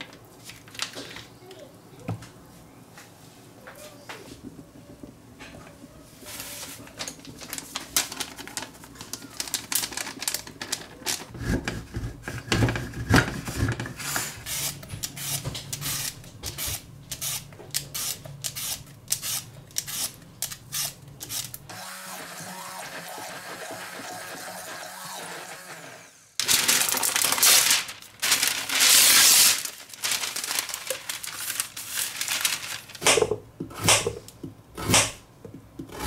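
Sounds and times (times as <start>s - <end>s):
hand blender humming: 21.7s - 26.3s.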